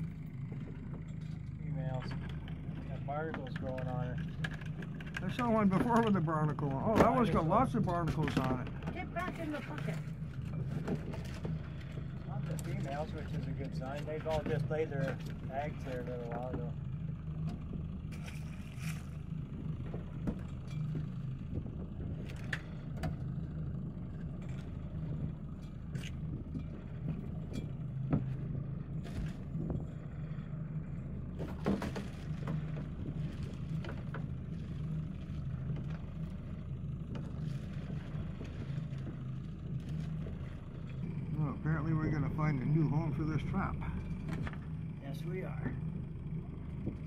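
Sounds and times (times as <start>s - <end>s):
boat engine humming: 0.0s - 47.0s.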